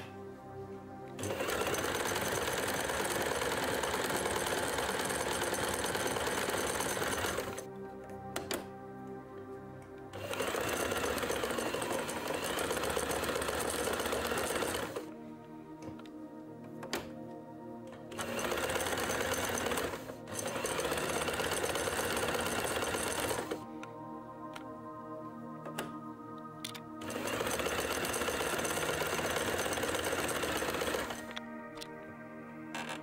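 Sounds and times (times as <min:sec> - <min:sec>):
background music: 0:00.0 - 0:33.0
sewing machine running: 0:01.2 - 0:07.7, 0:10.2 - 0:15.1, 0:18.1 - 0:23.6, 0:27.0 - 0:31.4.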